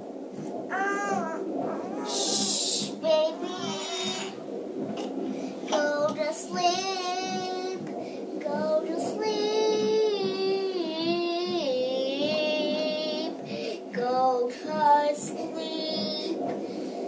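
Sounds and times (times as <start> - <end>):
high voice singing with vibrato: 0.7 - 4.4.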